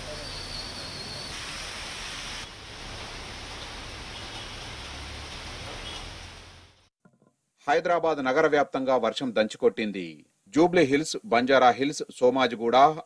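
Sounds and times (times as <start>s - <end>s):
heavy rain on road: 0.3s - 6.9s.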